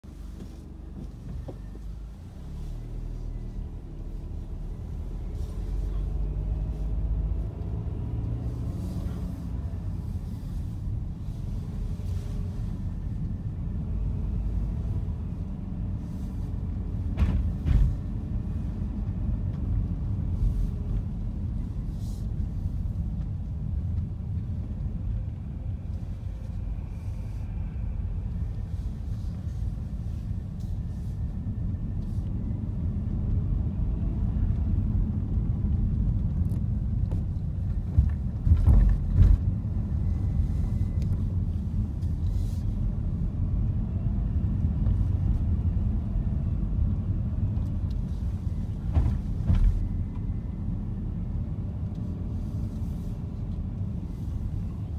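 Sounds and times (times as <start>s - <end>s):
car engine and road noise: 0.0s - 54.9s.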